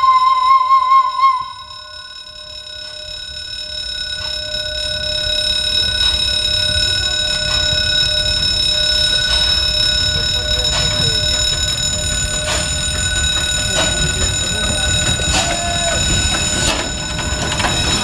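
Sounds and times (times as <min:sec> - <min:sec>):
level crossing warning ringer: 0:04.0 - 0:18.0
steam locomotive rumble: 0:04.9 - 0:18.0.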